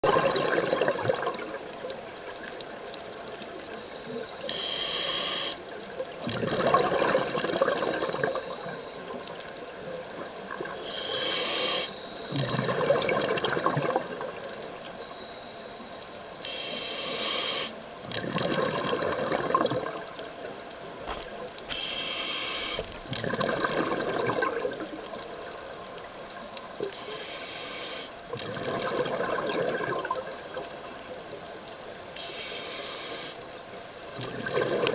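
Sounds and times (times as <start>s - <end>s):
exhaled bubbles rushing: 0.0s - 1.7s, 6.2s - 8.4s, 12.3s - 14.4s, 18.1s - 20.1s, 22.9s - 25.0s, 28.3s - 30.4s, 34.2s - 34.9s
hiss of inhaled air: 4.4s - 5.6s, 10.8s - 12.3s, 16.4s - 17.8s, 21.7s - 23.1s, 26.9s - 28.2s, 32.2s - 33.4s.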